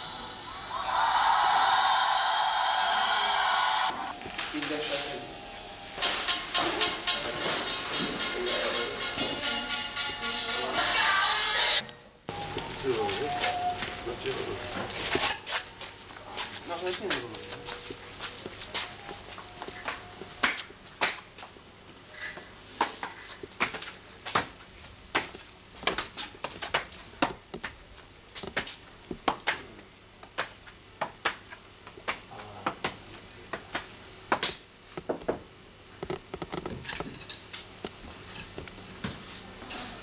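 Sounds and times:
footsteps on stone steps: 14.7s - 29.6s.

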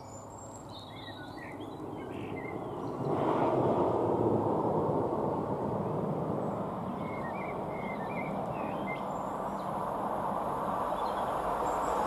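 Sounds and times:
bird chirps: 0.0s - 3.2s, 6.4s - 9.8s
distant train rumble: 0.8s - 12.0s.

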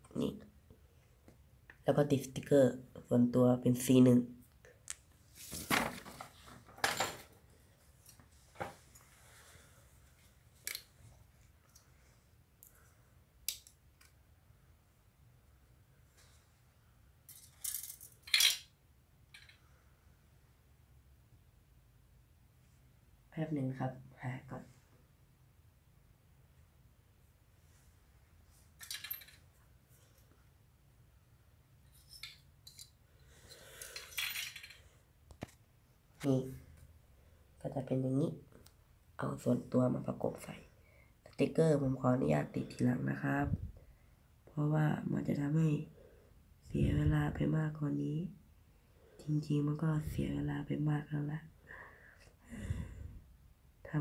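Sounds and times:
plastic parts clicking: 17.3s - 18.7s
toy parts scraping: 17.3s - 18.7s, 31.9s - 34.9s
toy parts rustling: 17.3s - 19.6s, 28.7s - 30.3s, 31.8s - 35.6s.

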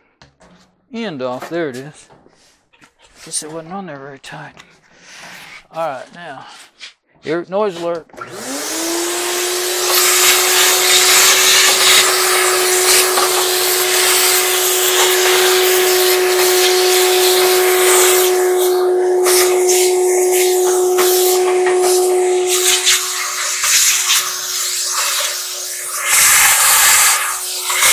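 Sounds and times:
vacuum cleaner running: 8.2s - 27.9s.

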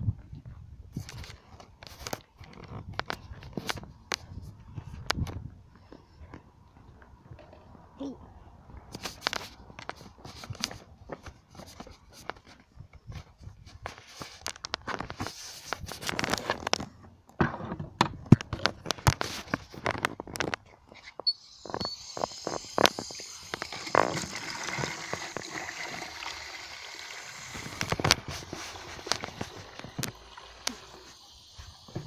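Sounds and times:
clattering knocks and handling: 9.0s - 20.9s
water running into plastic bucket: 21.6s - 32.0s.

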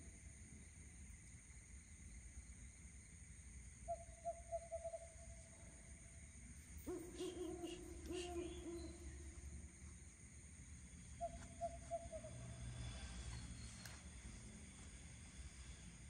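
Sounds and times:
high insect drone: 0.0s - 16.0s
owl hooting: 3.9s - 5.1s, 6.8s - 9.5s, 11.2s - 12.5s.

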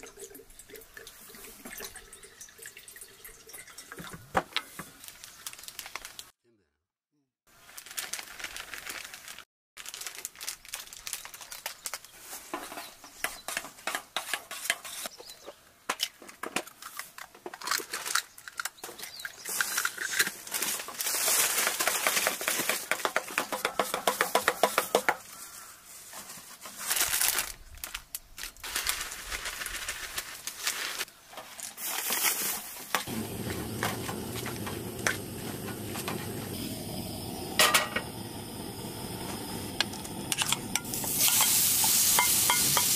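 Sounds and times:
flour poured from paper packet: 7.6s - 12.1s, 28.6s - 31.1s
steady hiss: 31.9s - 42.9s
metal spoon scraping a pan: 40.3s - 42.9s.

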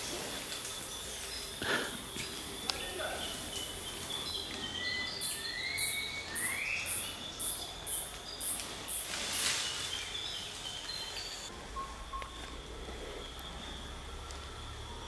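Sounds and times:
high insect trills: 0.0s - 15.0s
rising whistled bird calls: 0.7s - 12.4s.

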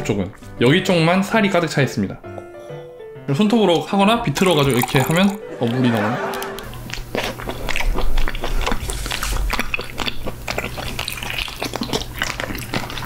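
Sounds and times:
close eating wet clicks and squishes: 6.6s - 13.0s.

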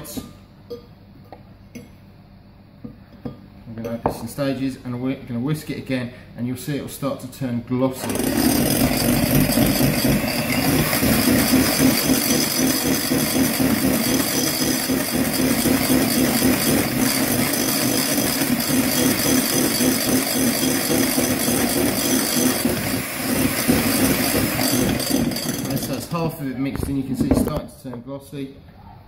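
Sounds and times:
electric whisk beating in bowl: 8.0s - 26.3s.

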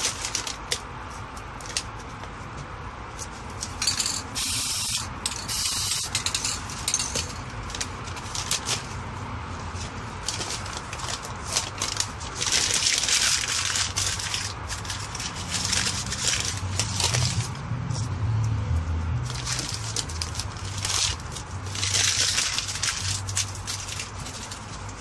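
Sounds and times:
paper crumpling and crackling: 0.0s - 3.6s, 7.6s - 17.6s, 19.2s - 25.0s.

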